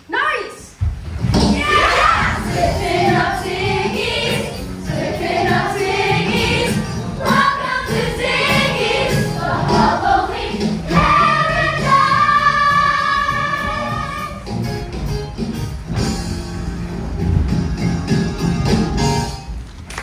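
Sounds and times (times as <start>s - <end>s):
musical accompaniment: 1.3s - 20.0s
young ensemble singing: 1.4s - 14.4s.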